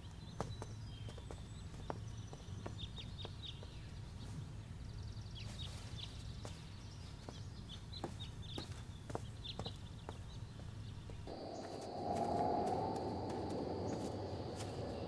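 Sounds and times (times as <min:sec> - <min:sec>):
small birds chirping: 0:00.0 - 0:15.0
steady low hum: 0:11.3 - 0:15.0.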